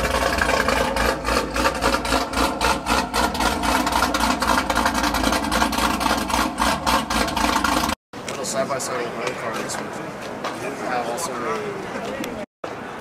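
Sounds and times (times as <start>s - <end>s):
car engine idling: 0.0s - 8.0s.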